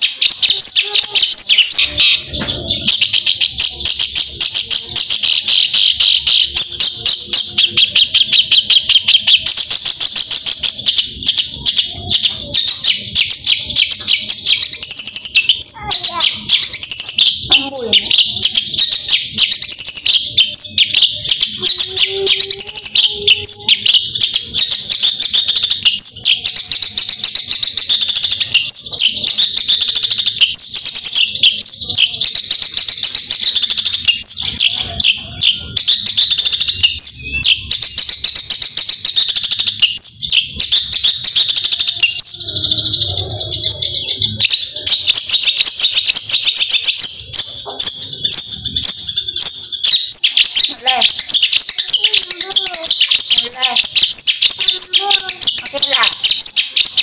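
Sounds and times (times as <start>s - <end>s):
shrike chattering song: 0.0s - 57.0s.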